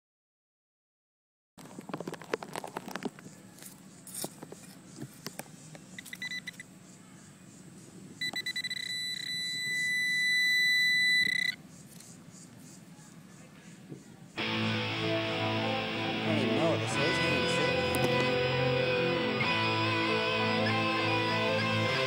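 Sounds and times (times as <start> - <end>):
pinpointer pulsing beep: 6.0 - 6.7, 8.2 - 11.6
steady high tone: 14.4 - 22.0.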